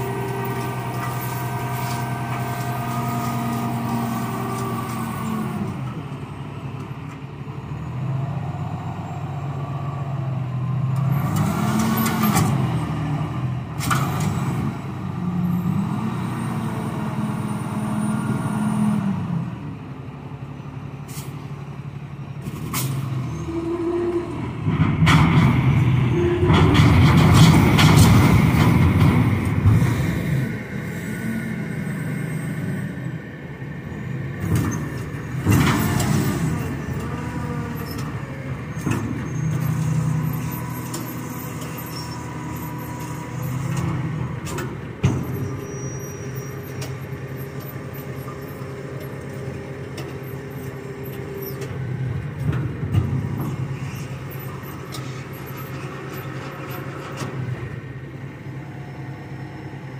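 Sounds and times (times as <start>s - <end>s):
diesel truck engine under load: 0.0s - 59.9s.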